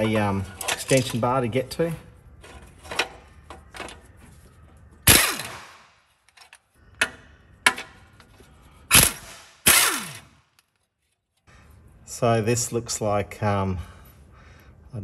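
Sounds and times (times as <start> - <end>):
impact wrench bursts: 5.1 - 5.8, 8.9 - 10.4.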